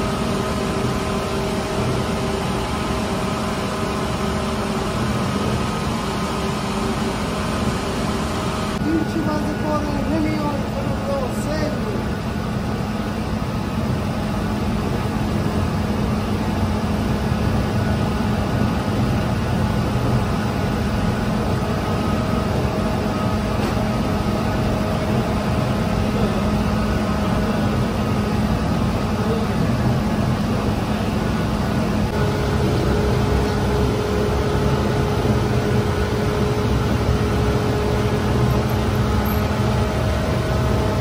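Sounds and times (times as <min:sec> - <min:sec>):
dough mixer humming: 0:00.0 - 0:41.0.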